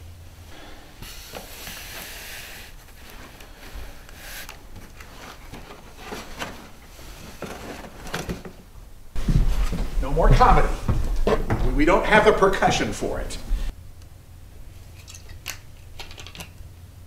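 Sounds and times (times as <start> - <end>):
straw hats rustling on cardboard: 0.9 - 13.7.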